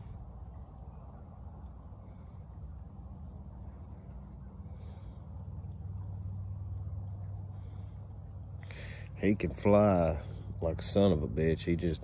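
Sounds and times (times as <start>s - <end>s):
constant low rumble: 0.0s - 12.0s.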